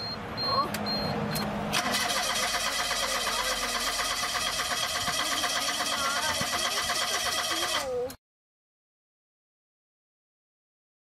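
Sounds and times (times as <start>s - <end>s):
starter motor cranking engine: 1.7s - 8.1s.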